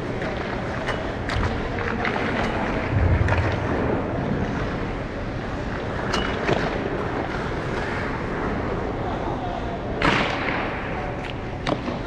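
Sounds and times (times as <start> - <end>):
low rumble: 2.8 - 5.4
wind buffeting microphone: 2.8 - 5.4
ice skates scraping: 3.6 - 8.9.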